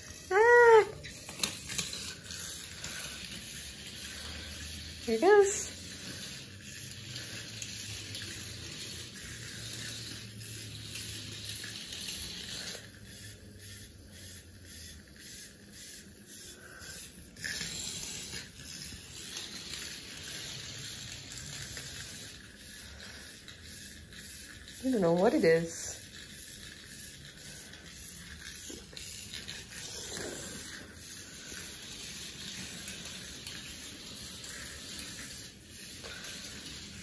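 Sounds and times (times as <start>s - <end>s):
toy snake moving over tiles: 0.0s - 37.0s.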